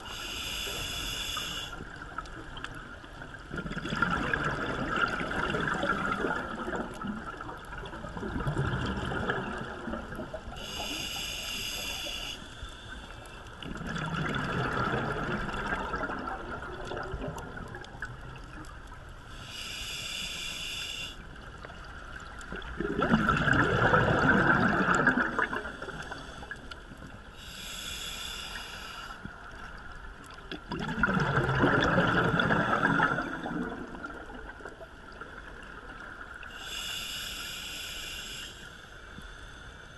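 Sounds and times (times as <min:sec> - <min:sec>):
regulator inhale hiss: 0:00.0 - 0:02.0, 0:10.4 - 0:13.6, 0:19.3 - 0:21.6, 0:25.4 - 0:29.6, 0:36.4 - 0:39.9
exhaust bubbles bubbling: 0:03.5 - 0:10.4, 0:13.7 - 0:18.2, 0:22.5 - 0:25.8, 0:30.6 - 0:34.4.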